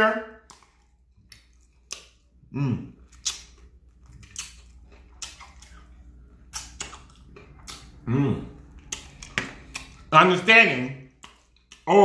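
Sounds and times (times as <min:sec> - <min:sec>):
man chewing with lip smacks: 0:00.4 - 0:10.1, 0:11.1 - 0:11.9
man humming: 0:02.5 - 0:03.0, 0:08.0 - 0:08.6.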